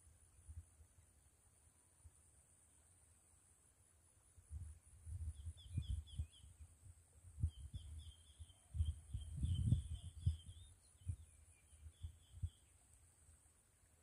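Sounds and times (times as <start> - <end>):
wind buffeting microphone: 4.6 - 6.4, 7.3 - 12.6
bird chirping: 5.2 - 6.8, 7.4 - 13.0.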